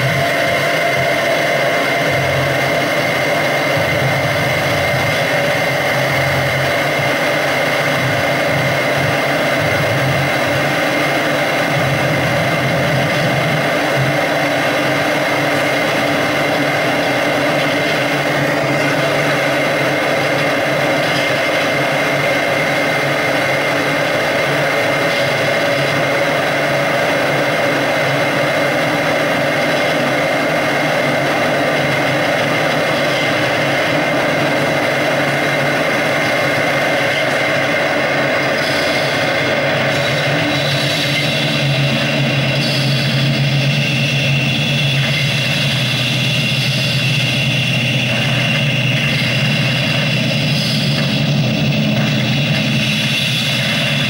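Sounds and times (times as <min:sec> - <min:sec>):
electronic noise drone: 0:00.0 - 0:54.0.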